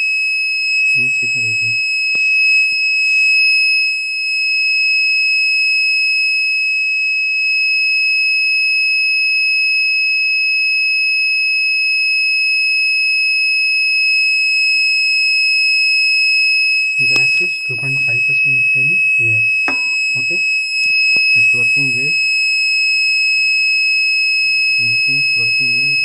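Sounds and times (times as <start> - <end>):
high-pitched alarm buzzer: 17.0 - 22.2
handling noise: 19.6 - 20.6.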